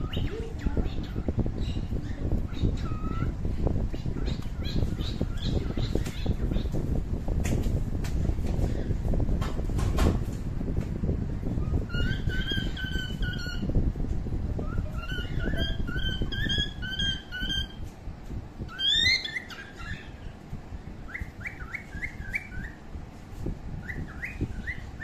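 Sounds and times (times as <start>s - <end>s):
bird chirping: 0.0s - 6.8s, 11.6s - 13.7s, 14.6s - 17.8s, 18.7s - 20.3s, 21.1s - 22.8s, 23.8s - 25.0s
low rumbling noise: 0.0s - 25.0s.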